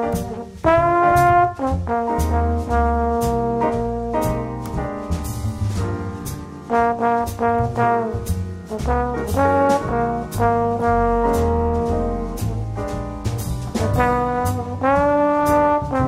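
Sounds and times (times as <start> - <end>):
instrumental music with beat: 0.0 - 16.0.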